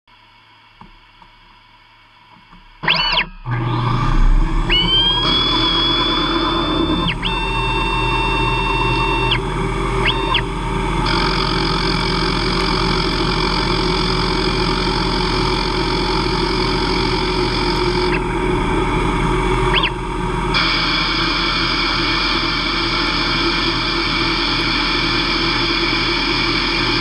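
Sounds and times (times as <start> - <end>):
spindle hum: 0.2 - 27.0
drive motors whining: 2.8 - 23.5.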